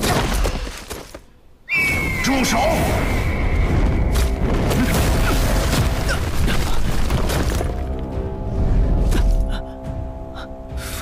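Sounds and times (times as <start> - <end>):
sustained music chord: 7.8 - 11.0.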